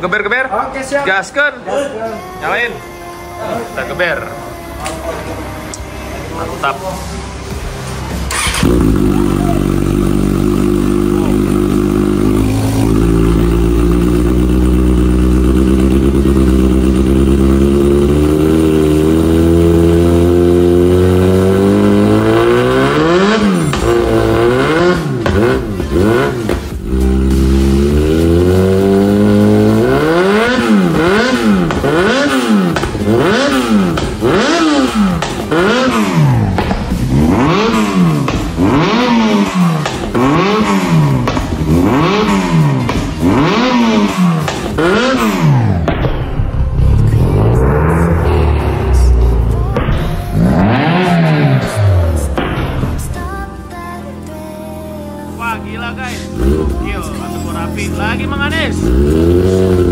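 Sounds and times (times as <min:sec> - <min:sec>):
motorcycle engine throttle blips: 0:08.3 - 0:18.4
motorcycle engine idling: 0:08.3 - 0:47.4, 0:54.2 - 0:59.9.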